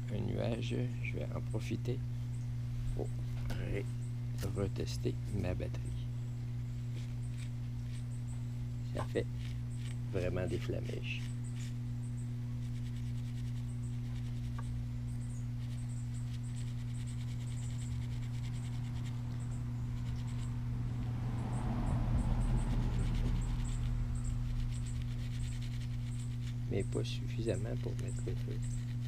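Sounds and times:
steady low hum: 0:00.0 - 0:29.0
battery scratching against tinder: 0:06.7 - 0:14.9, 0:15.5 - 0:20.6, 0:22.6 - 0:29.0.

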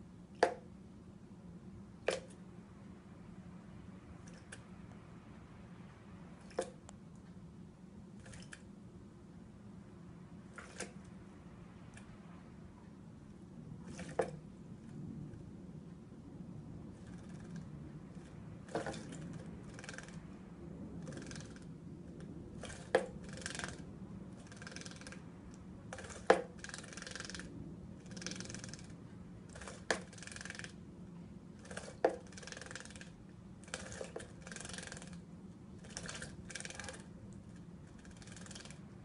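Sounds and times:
bird splashing and fluttering: 0:02.0 - 0:02.5, 0:06.2 - 0:06.9, 0:08.1 - 0:08.7, 0:10.4 - 0:12.3, 0:13.8 - 0:15.5, 0:16.9 - 0:30.8, 0:31.4 - 0:39.0.

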